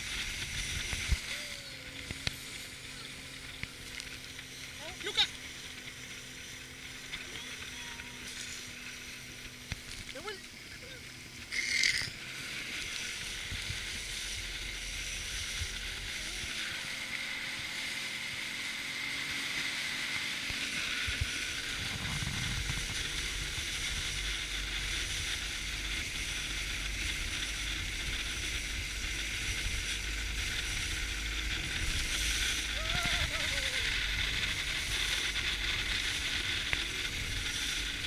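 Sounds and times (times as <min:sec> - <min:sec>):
low rumble: 0:21.1 - 0:38.0.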